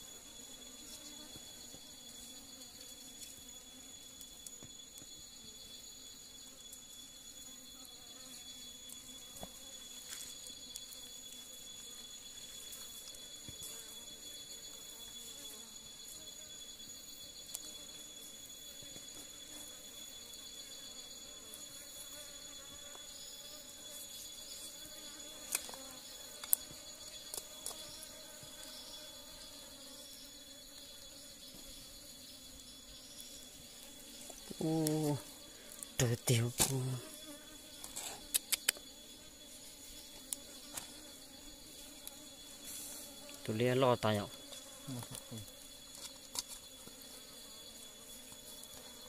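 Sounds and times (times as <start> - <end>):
insects calling: 0.0 - 49.0
sharp clicks: 38.2 - 38.8.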